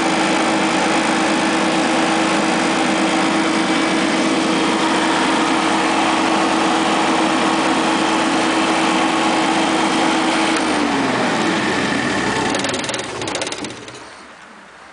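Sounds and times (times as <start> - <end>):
generator engine winding down: 0.0 - 14.4
engine rattle coming to rest: 12.1 - 14.3.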